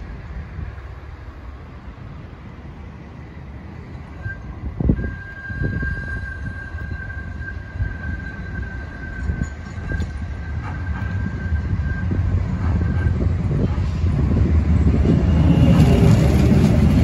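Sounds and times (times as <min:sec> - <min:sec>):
tram wheels squealing: 0:03.9 - 0:17.0
low rolling rumble: 0:09.2 - 0:17.0.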